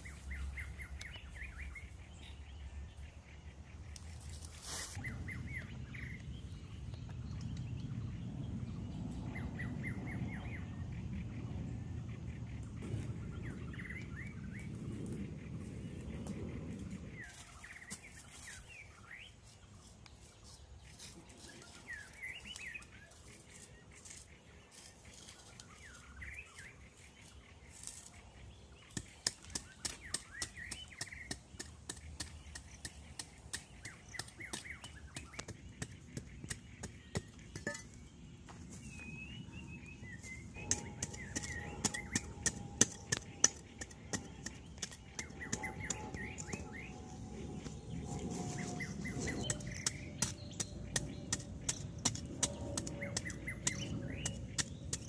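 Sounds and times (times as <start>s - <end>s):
small birds chirping: 0.0s - 55.0s
blade chopping into dry soil: 28.8s - 38.1s, 40.6s - 47.0s, 48.8s - 55.0s.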